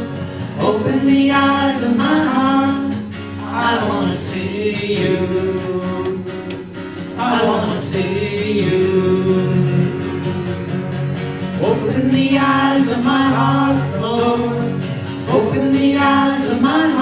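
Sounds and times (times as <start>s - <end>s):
guitar accompaniment: 0.0s - 17.0s
woman singing: 0.6s - 6.2s, 11.6s - 17.0s.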